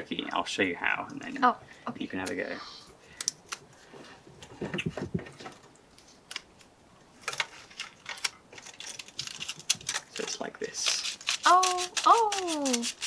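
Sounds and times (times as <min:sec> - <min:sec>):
film handling rustle: 0:05.3 - 0:13.0.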